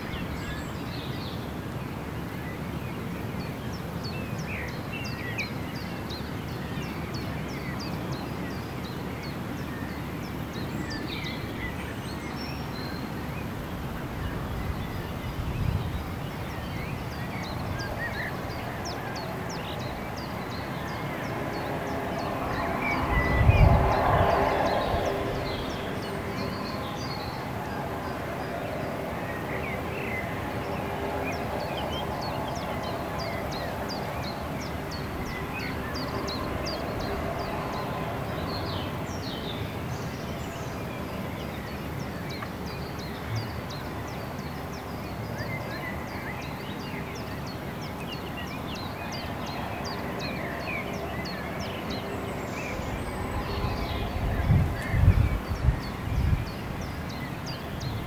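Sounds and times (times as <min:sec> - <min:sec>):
steady background rush: 0:13.2 - 0:41.2.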